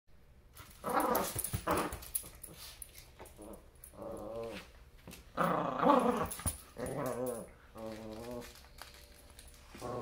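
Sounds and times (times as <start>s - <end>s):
puppy growling: 3.2s - 4.7s, 5.3s - 8.8s, 9.7s - 10.0s.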